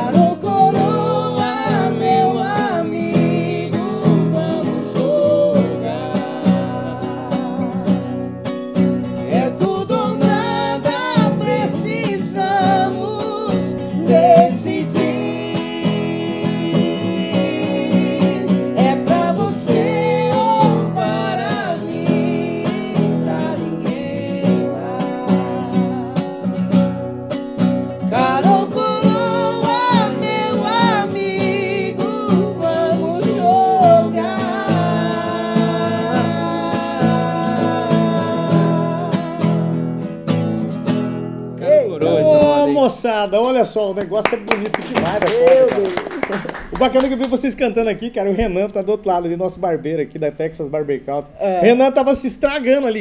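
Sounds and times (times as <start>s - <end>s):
men singing in harmony: 0.0s - 8.4s, 9.2s - 27.1s, 28.0s - 40.0s, 42.0s - 42.8s
acoustic guitar: 0.0s - 53.0s.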